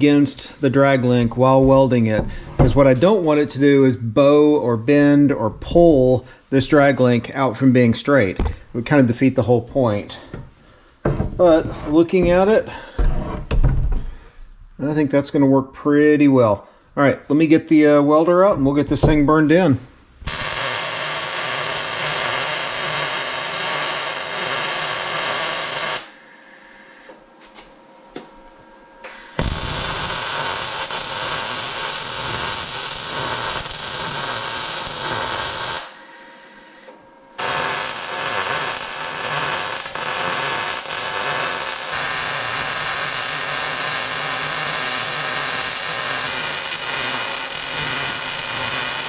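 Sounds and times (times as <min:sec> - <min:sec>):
welder arc sizzling: 0:20.2 - 0:27.2, 0:29.0 - 0:49.0.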